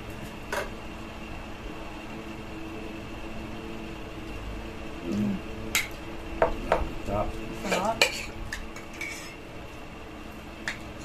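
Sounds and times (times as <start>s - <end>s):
machinery hum with whine: 0.0s - 11.0s
person humming low: 5.0s - 5.6s.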